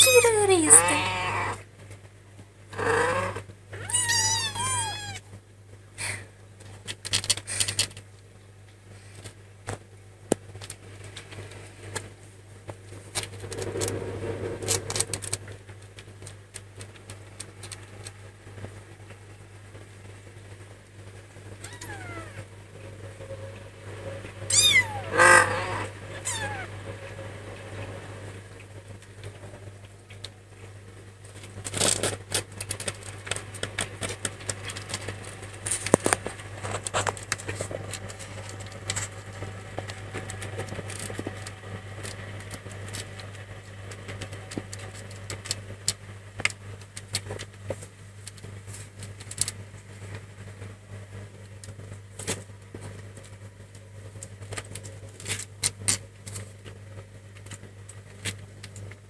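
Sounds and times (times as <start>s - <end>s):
cats mewing: 0.0s - 1.6s, 2.8s - 5.2s, 21.6s - 22.5s, 24.5s - 26.8s
kittens rustling and clicking: 3.8s - 5.2s, 6.0s - 18.8s, 31.2s - 50.4s.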